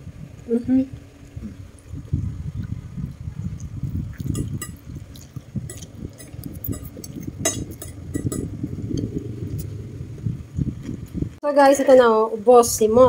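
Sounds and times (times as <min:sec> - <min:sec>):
low steady rumble: 0:00.0 - 0:13.0
fork clinking on ceramic plate: 0:05.7 - 0:08.5.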